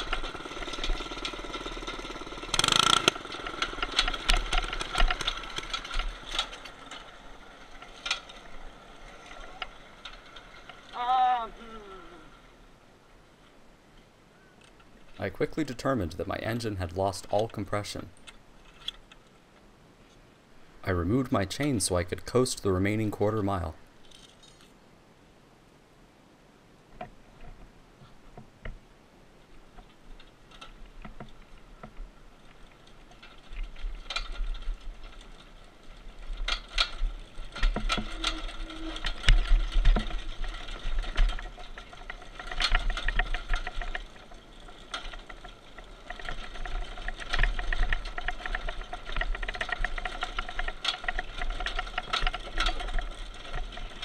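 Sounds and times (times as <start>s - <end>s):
rough tyre noise: 0.0s - 13.6s, 29.5s - 54.0s
minibike frame rattling over gravel: 0.0s - 14.1s, 14.7s - 19.6s, 20.6s - 24.8s, 29.3s - 54.0s.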